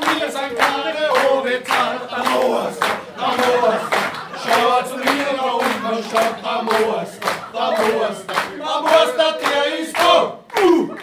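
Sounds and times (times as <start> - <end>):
men singing together: 0.0 - 10.4
rhythmic clapping: 0.0 - 11.0.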